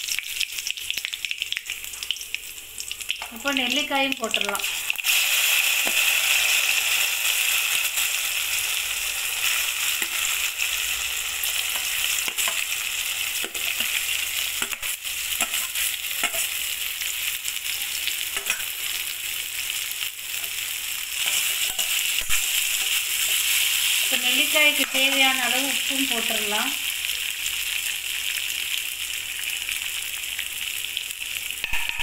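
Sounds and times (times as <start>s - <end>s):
food sizzling in hot oil: 0.0s - 32.0s
spatula clicks and scrapes: 13.4s - 16.6s, 21.2s - 23.5s.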